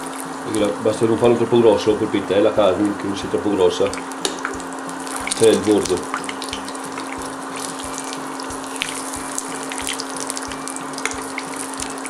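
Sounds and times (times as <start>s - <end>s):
oil sizzling in a frying pan: 0.0s - 12.0s
soft background music: 0.0s - 12.0s.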